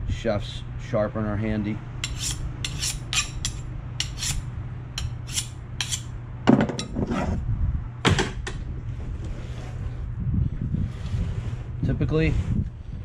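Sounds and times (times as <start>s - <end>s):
knife scraping on sharpening steel: 2.0s - 4.4s, 5.0s - 6.1s.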